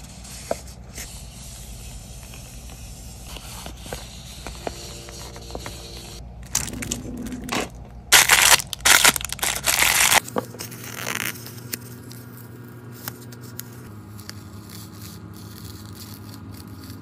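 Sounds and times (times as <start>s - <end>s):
packaging crinkling and rustling: 6.5s - 11.6s.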